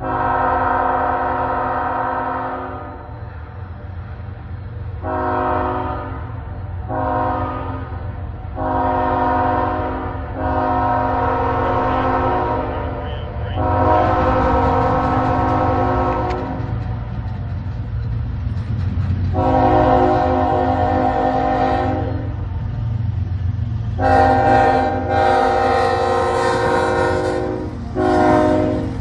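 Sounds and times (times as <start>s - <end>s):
locomotive air horn blasts: 0.0s - 3.1s, 5.0s - 8.0s, 8.6s - 16.8s, 19.4s - 22.3s, 24.0s - 29.0s
train rumbling: 0.0s - 29.0s.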